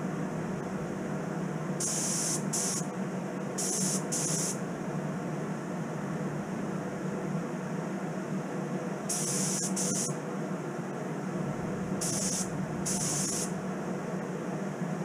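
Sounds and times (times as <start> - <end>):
steady fan hum: 0.0 - 15.0
spray gun hissing: 1.8 - 2.9, 3.6 - 4.6, 9.1 - 10.1, 12.0 - 13.6.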